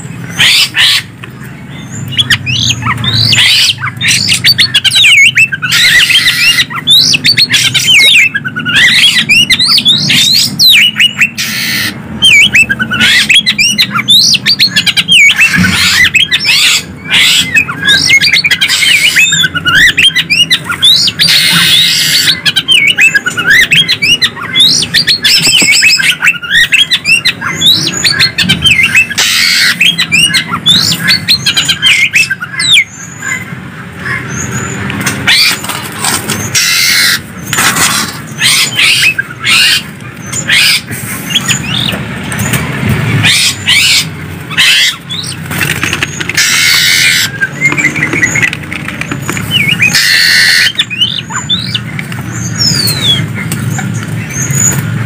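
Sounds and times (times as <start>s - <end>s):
songbirds whistling and chirping: 0.0s - 55.0s.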